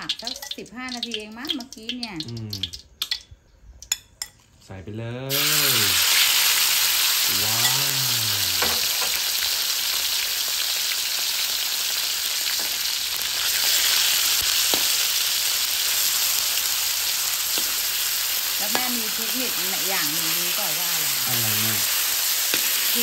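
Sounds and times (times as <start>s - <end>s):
meat sizzling in oil: 5.3s - 23.0s.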